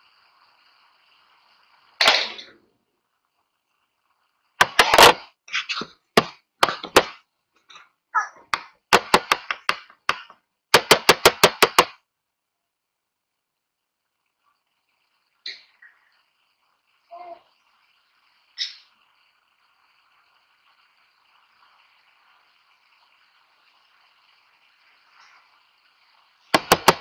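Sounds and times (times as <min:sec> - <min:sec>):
small objects tapping and knocking: 0:04.6 - 0:12.0, 0:26.5 - 0:27.0.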